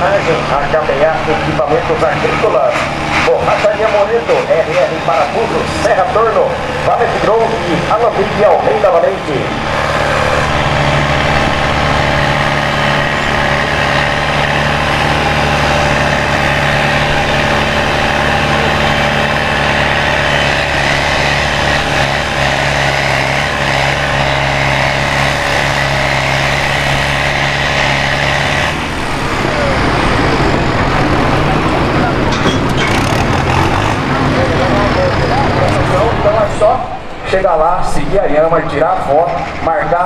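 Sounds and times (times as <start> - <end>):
tractor diesel engine running hard: 0.0 - 40.0.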